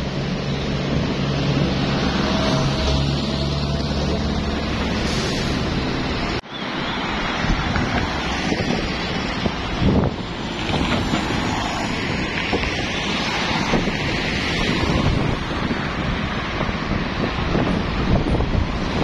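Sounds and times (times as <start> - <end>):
traffic rushing: 0.0 - 19.0
wind buffeting microphone: 7.2 - 19.0.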